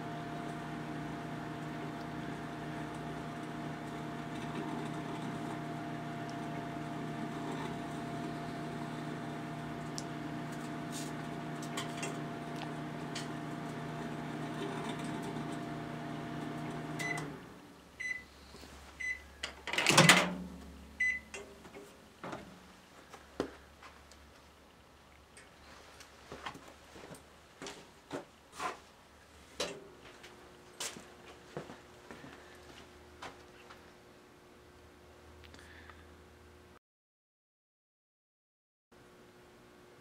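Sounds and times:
microwave oven humming: 0.0s - 18.4s, 19.0s - 21.8s, 39.0s - 40.0s
microwave short beeps: 17.0s - 17.4s, 18.0s - 18.3s, 19.0s - 19.3s, 21.0s - 21.4s.

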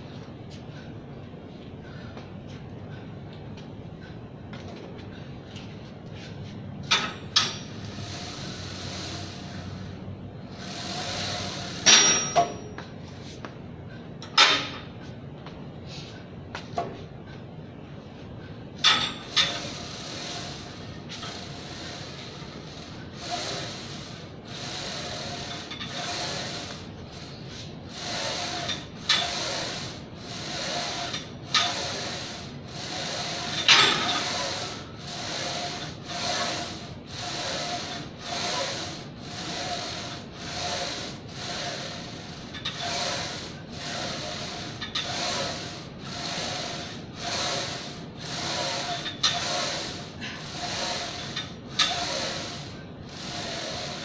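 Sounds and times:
exercise machine squeaking: 32.9s - 41.0s, 41.7s - 52.7s.

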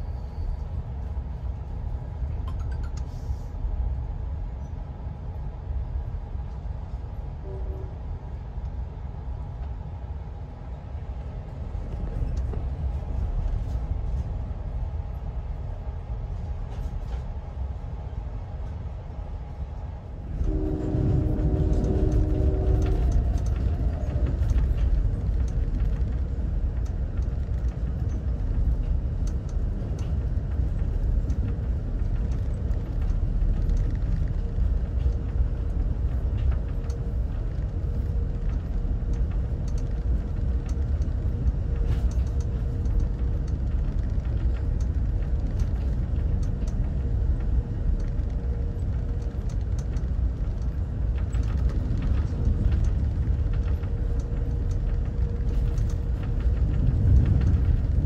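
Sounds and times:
train wheels rumbling on rail: 0.0s - 58.0s
train horn chord: 7.4s - 8.0s, 20.4s - 23.6s
faint clicks: 21.6s - 58.0s.

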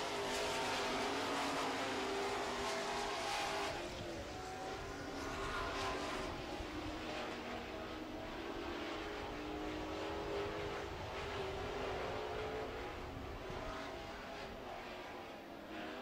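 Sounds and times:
racing truck engines: 0.0s - 16.0s.

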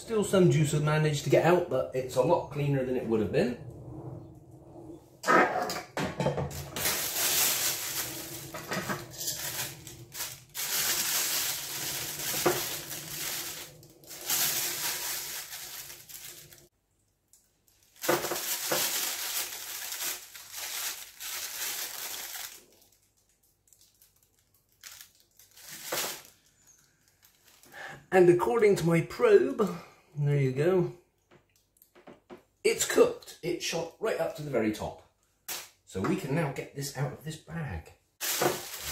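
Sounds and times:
plastic bag crinkling: 6.5s - 16.7s, 17.3s - 27.7s, 38.2s - 38.9s.

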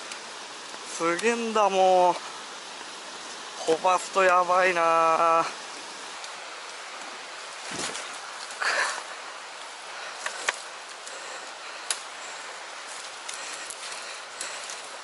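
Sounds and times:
steady hiss: 0.0s - 15.0s
stems snapping: 0.1s - 1.4s, 6.2s - 8.8s, 9.6s - 11.2s, 11.8s - 12.2s, 12.9s - 15.0s
footsteps through dry grass: 4.9s - 15.0s.

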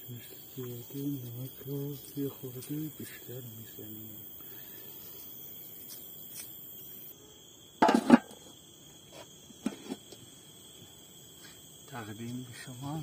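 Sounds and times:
lid knocking on pot: 7.8s - 8.4s
metal lid clattering on pot: 7.8s - 8.4s.

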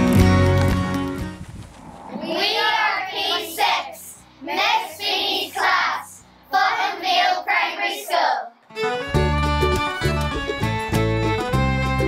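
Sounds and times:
children singing: 2.1s - 8.5s.

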